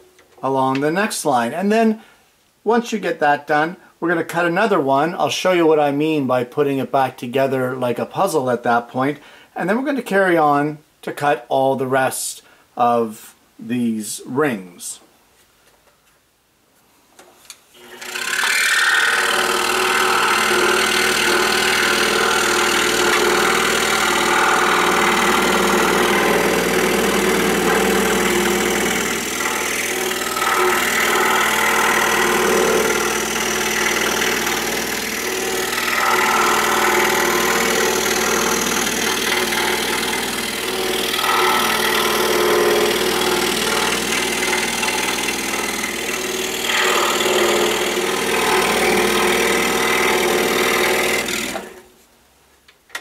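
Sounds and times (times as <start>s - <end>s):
scroll saw cutting wood: 17.7s - 51.9s.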